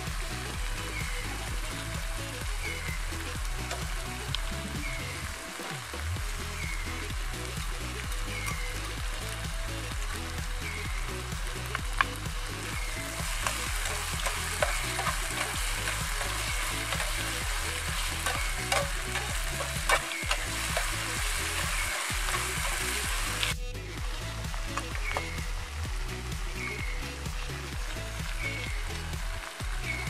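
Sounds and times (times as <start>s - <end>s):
food sizzling in frying pan: 0.0s - 30.0s
metal ladle scraping pan: 13.2s - 23.0s.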